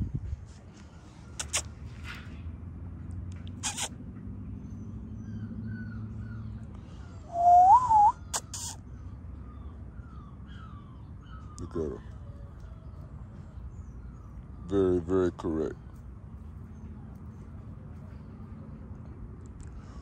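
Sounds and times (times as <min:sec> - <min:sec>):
small birds chirping faintly: 0:03.6 - 0:20.0
wavering whistle: 0:07.3 - 0:08.2.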